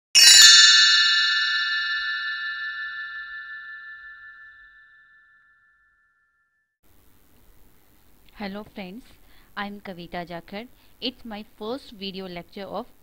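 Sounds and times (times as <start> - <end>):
bell-like chime ringing: 0.1 - 6.4.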